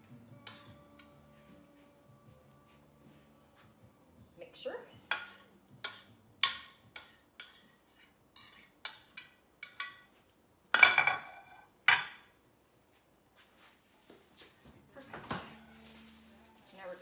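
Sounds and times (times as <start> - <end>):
dishes clattering: 5.1 - 10.1, 10.7 - 12.3.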